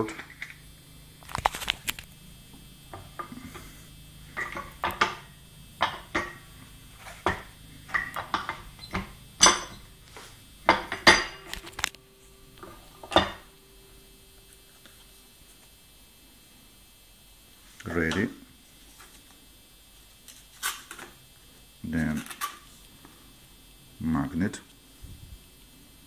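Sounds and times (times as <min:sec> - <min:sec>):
metal clinks and knocks: 0:07.2 - 0:09.8.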